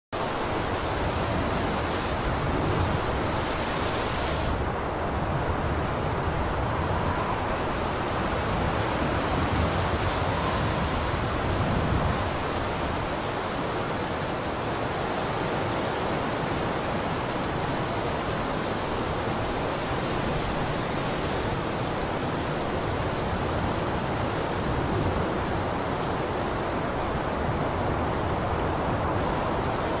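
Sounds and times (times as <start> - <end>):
steady rushing wind: 0.1 - 30.0.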